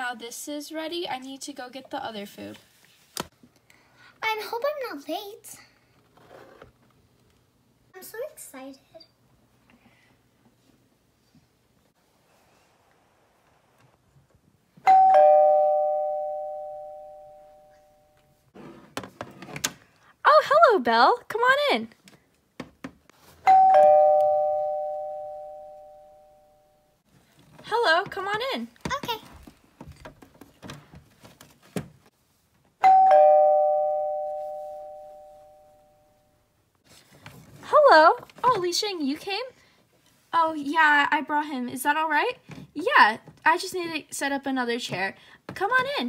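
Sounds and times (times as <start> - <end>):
two-tone doorbell chime: 14.9 - 18.2, 23.5 - 26.9, 32.8 - 36.2.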